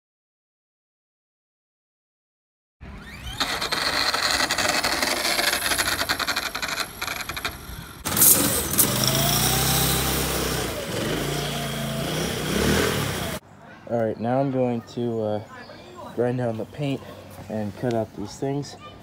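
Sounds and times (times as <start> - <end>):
small engine running: 2.8 - 13.4
small motor rattling: 2.9 - 13.4.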